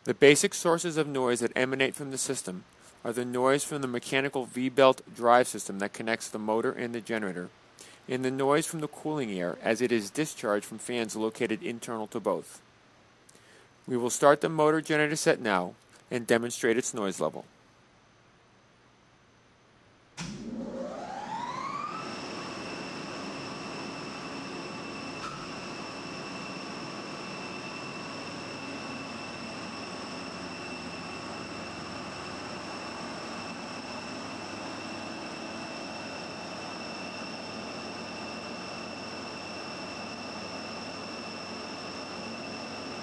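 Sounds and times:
rush of cooling air from fans: 0:00.0 - 0:15.4, 0:20.2 - 0:43.0
motor generator whining: 0:20.2 - 0:43.0.

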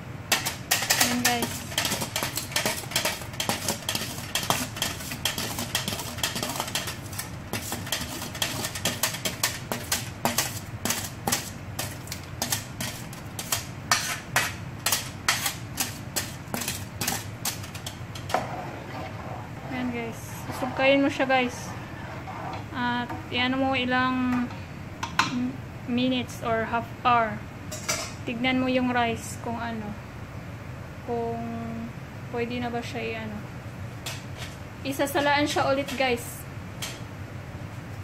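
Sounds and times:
spoon clinking on metal colander: 0:00.3 - 0:11.5.

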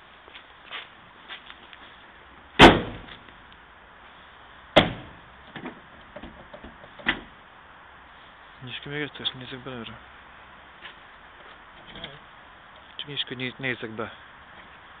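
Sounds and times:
hardtop panels slamming shut: 0:02.6 - 0:03.2, 0:04.8 - 0:07.3.

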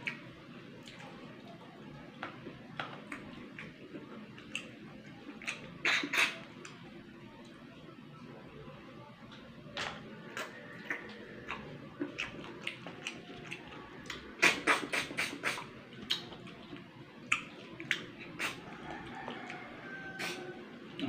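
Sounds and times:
mouth smacks and clicks: 0:05.3 - 0:06.8, 0:09.8 - 0:18.7
wet sucking and slurping: 0:14.4 - 0:15.7, 0:18.2 - 0:18.7.

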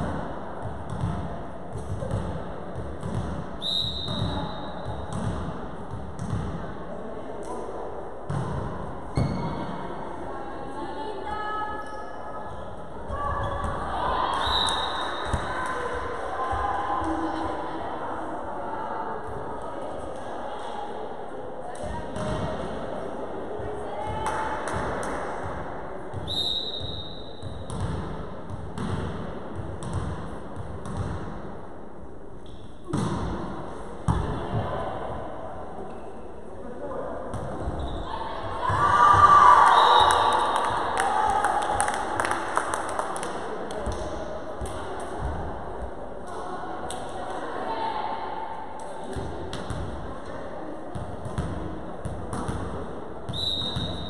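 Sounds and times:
volleyball bouncing on wooden floor: 0:00.6 - 0:03.4, 0:04.0 - 0:06.7, 0:27.4 - 0:31.3
referee's whistle: 0:03.6 - 0:04.8, 0:14.4 - 0:15.3, 0:26.2 - 0:27.4, 0:39.6 - 0:40.5, 0:53.3 - 0:54.0.

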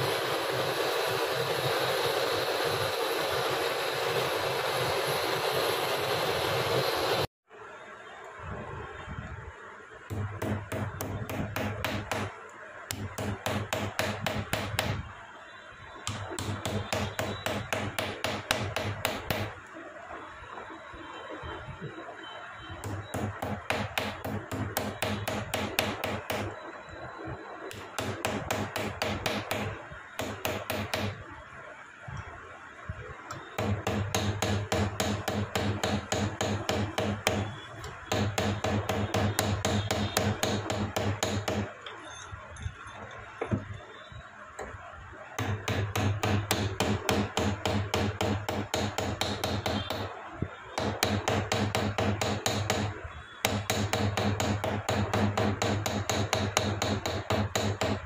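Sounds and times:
rapid hammering on metal: 0:10.0 - 0:15.1, 0:16.0 - 0:19.7, 0:22.8 - 0:26.6, 0:27.7 - 0:31.2, 0:33.3 - 0:41.8, 0:45.3 - 0:58.0.

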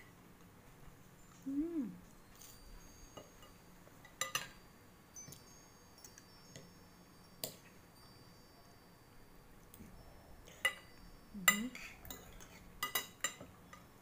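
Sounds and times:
cutlery clinking on ceramic plate: 0:02.4 - 0:04.6, 0:11.5 - 0:13.9.

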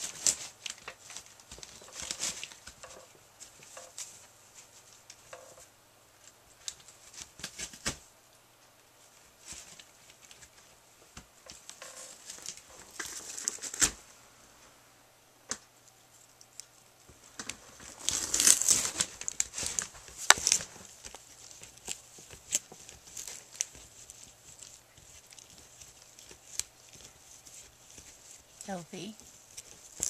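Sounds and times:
puppy chewing cardboard: 0:00.0 - 0:05.4, 0:16.0 - 0:30.0.

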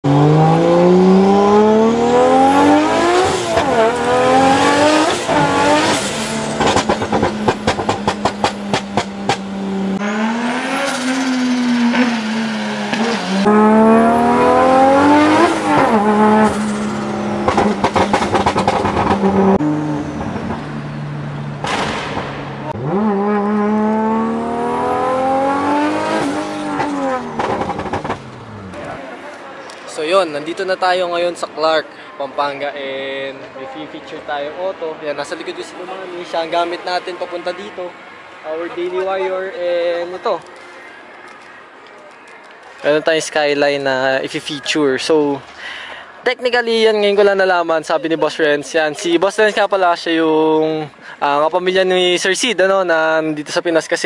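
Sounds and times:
car engine revving through gears: 0:00.0 - 0:29.0
exhaust pops and crackles: 0:06.5 - 0:09.5, 0:17.4 - 0:19.6, 0:21.6 - 0:22.8, 0:26.7 - 0:29.0.

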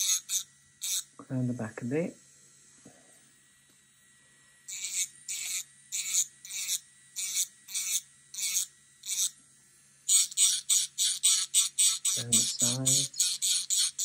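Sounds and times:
nail file bit rasping: 0:00.0 - 0:01.1, 0:04.6 - 0:09.4, 0:10.0 - 0:14.0
electric nail file motor whine: 0:00.0 - 0:14.0.

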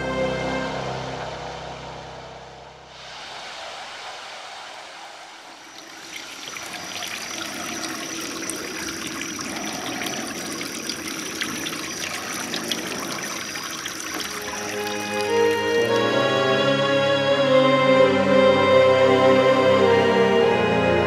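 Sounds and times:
water jets splashing: 0:03.0 - 0:17.6.

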